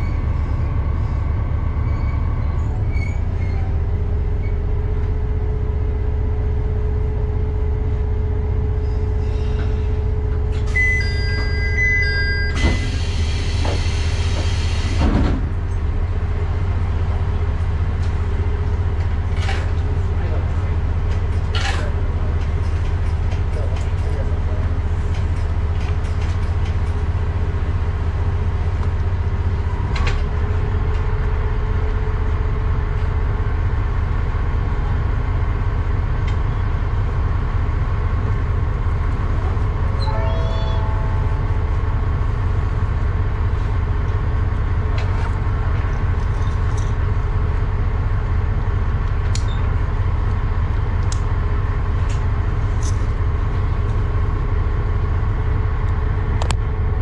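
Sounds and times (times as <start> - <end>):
diesel railcar idling: 0.0 - 57.0
high-pitched warble: 40.0 - 41.5.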